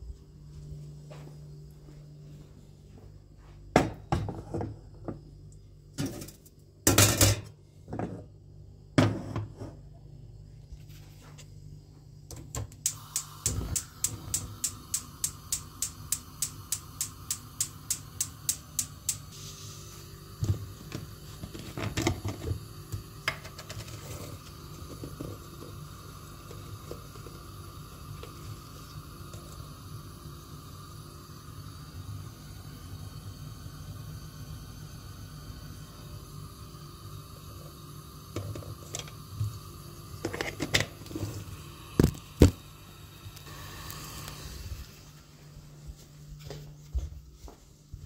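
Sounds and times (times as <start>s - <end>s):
stove spark igniter clicking: 12.3s - 19.3s
gas hiss: 12.8s - 45.3s.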